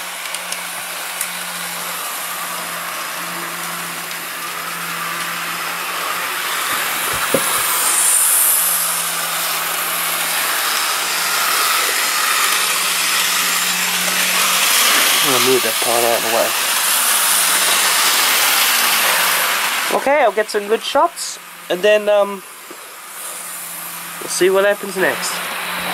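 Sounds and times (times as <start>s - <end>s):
low hum: 0.0s - 19.9s
model train motors whirring: 0.0s - 25.9s.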